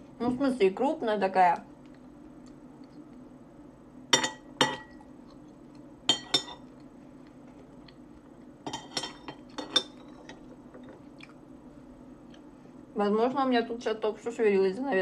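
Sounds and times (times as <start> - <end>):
metal spoon clinking on dish: 6.1 - 6.6, 8.7 - 10.4.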